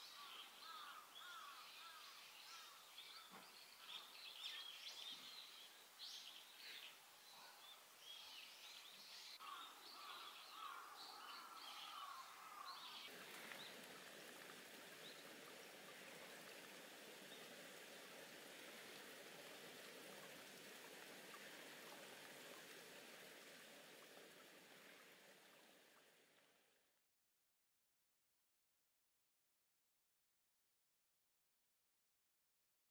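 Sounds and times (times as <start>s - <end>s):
faint birdsong: 0.0s - 26.2s
hiss of running water: 0.0s - 26.4s.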